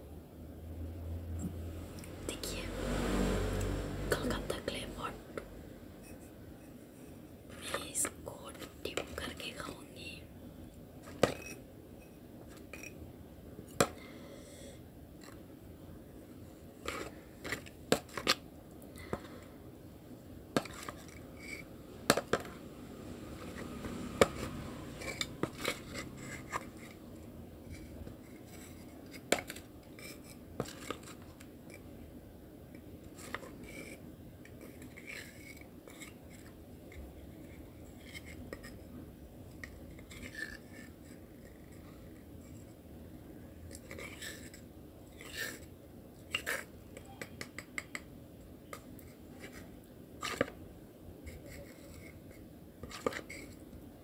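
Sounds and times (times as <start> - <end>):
metal spoon scraping a bowl: 23.3 - 27.1.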